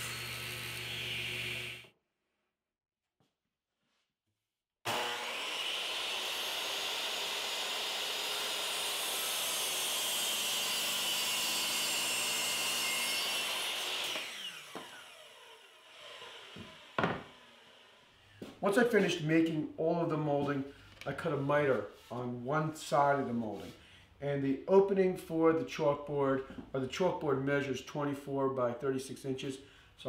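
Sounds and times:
miter saw cutting wood: 0:00.0 - 0:01.9, 0:04.9 - 0:18.1
knock: 0:17.0 - 0:17.3.

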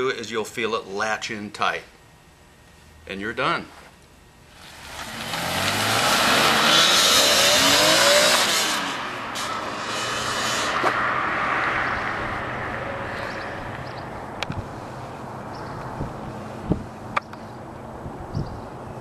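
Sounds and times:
tyre and road noise: 0:04.5 - 0:19.0
car engine accelerating: 0:04.6 - 0:14.2.

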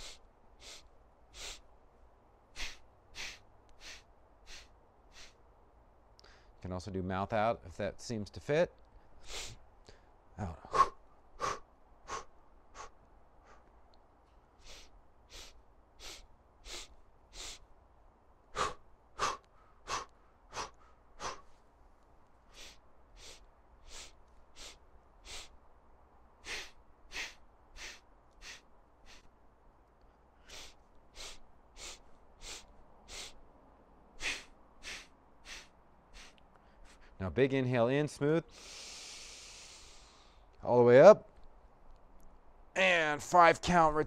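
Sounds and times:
man breathing sharply through nose: 0:00.0 - 0:01.7, 0:02.5 - 0:05.4, 0:06.2 - 0:06.6, 0:09.0 - 0:13.7, 0:14.6 - 0:17.7, 0:18.5 - 0:21.6, 0:22.4 - 0:25.6, 0:26.4 - 0:29.3, 0:30.2 - 0:33.4, 0:34.2 - 0:37.2, 0:38.5 - 0:40.5.

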